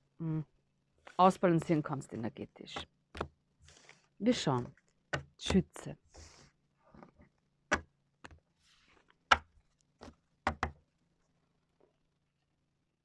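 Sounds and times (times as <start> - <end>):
cards tapped on table: 10.5 - 10.7.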